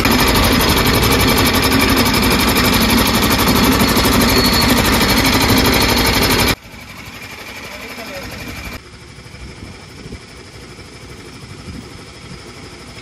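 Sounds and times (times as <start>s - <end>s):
sugarcane crusher rattling: 0.0s - 6.6s.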